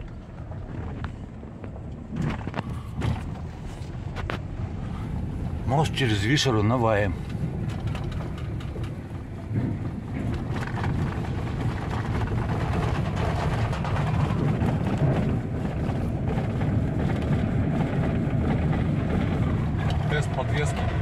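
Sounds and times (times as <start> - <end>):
engine and tyres rumbling: 0.0 - 21.0
knocks and rattles: 7.2 - 21.0.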